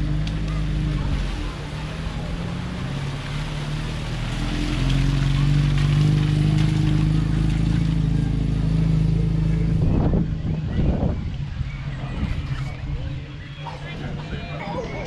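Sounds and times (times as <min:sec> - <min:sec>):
water splashing off tyres: 0:00.0 - 0:09.9
car engine driving past: 0:00.0 - 0:13.8.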